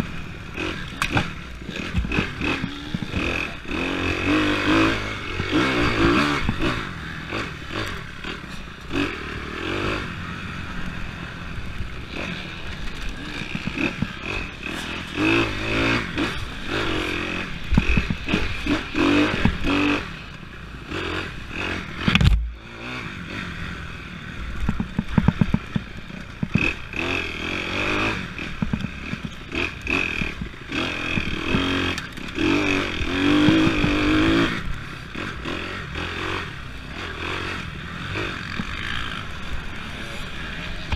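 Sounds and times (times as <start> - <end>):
dirt bike engine revving: 0.0 - 40.9
bike rattling and knocking: 12.2 - 19.9, 24.6 - 27.2, 28.4 - 34.9.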